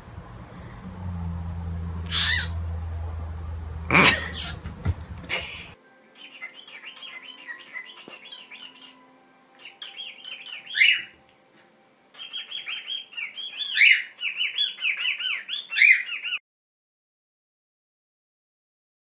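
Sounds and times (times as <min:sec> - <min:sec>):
cockatiel chattering: 0:02.1 - 0:02.6, 0:03.9 - 0:04.7.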